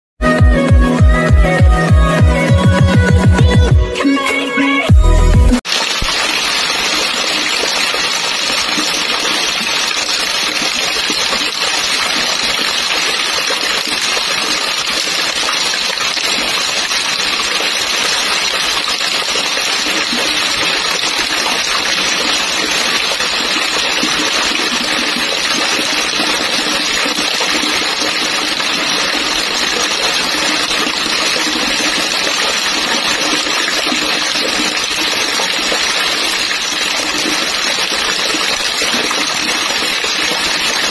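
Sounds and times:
heavy rain splashing onto water: 5.6 - 40.9.

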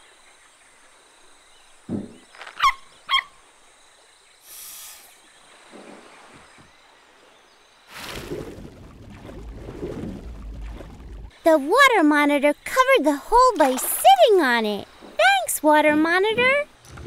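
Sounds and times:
soft cartoon thump: 1.9 - 2.3
brief hiss: 4.4 - 5.3.

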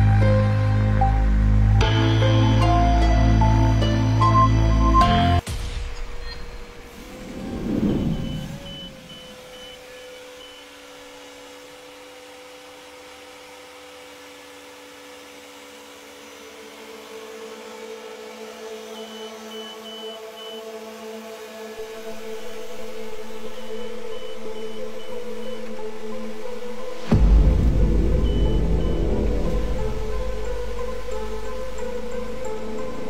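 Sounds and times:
construction machinery engine hum: 6.0 - 33.0
low rush: 6.6 - 9.4, 26.8 - 33.0
reversing alarm beeping: 7.3 - 10.9, 18.9 - 20.8, 21.9 - 25.9, 27.8 - 30.6.

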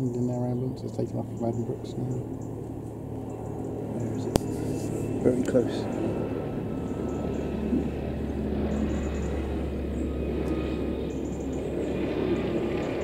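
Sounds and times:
helicopter drone: 0.0 - 13.0.

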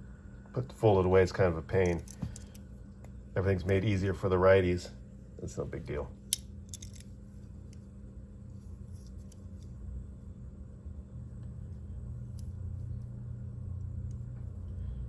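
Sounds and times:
steady low hum: 0.0 - 15.0
knife handling ticks: 6.3 - 7.9.

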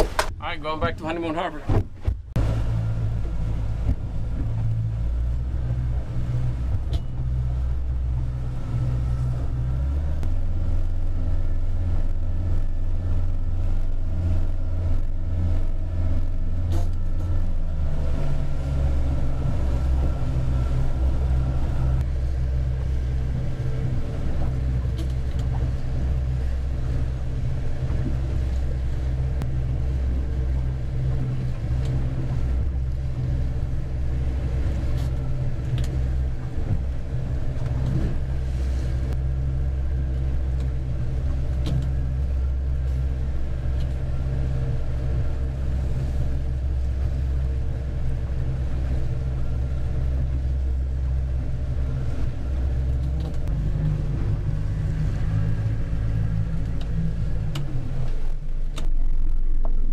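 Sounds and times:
motorboat engine running: 0.0 - 59.9.

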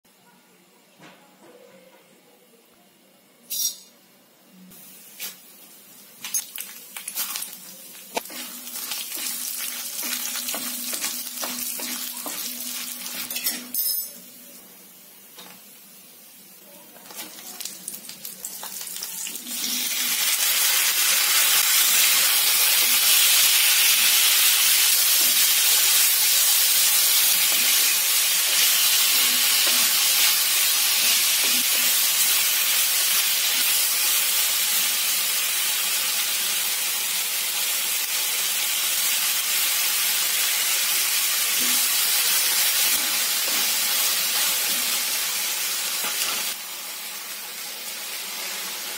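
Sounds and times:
oil sizzling in a pan: 4.7 - 48.9
clinks in a pan: 10.0 - 14.4.

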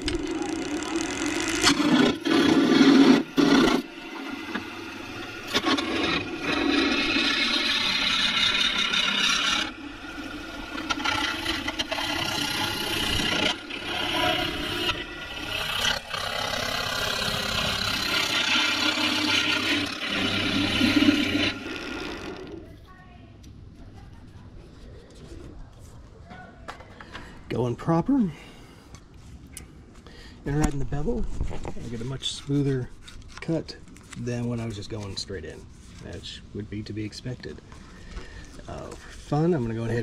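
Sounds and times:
gouge scraping hiss on wood lathe: 0.0 - 22.6
lathe running hum: 0.0 - 22.7.

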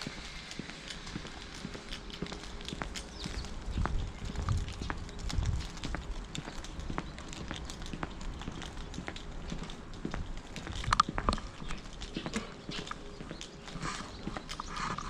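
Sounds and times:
footsteps on asphalt: 0.0 - 15.0.

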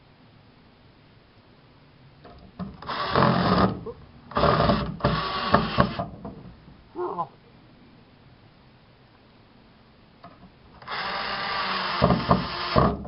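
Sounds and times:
cordless drill driving screws: 2.8 - 6.1, 10.8 - 13.0.

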